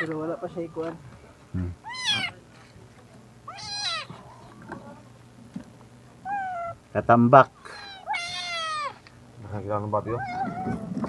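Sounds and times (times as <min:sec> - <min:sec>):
cat meowing: 0:01.8 - 0:02.4, 0:03.5 - 0:04.2, 0:06.2 - 0:06.8, 0:07.8 - 0:09.0, 0:10.0 - 0:11.0.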